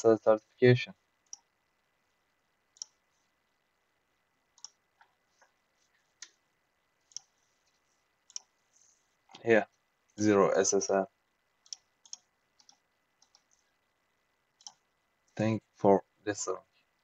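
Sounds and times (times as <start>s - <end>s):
computer mouse clicks: 1.2s - 1.5s, 2.7s - 3.0s, 4.5s - 6.4s, 7.1s - 8.6s, 11.6s - 13.6s, 14.6s - 14.9s.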